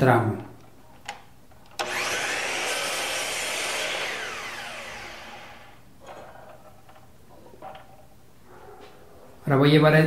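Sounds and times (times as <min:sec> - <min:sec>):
miter saw motor whining: 0:01.8 - 0:05.8.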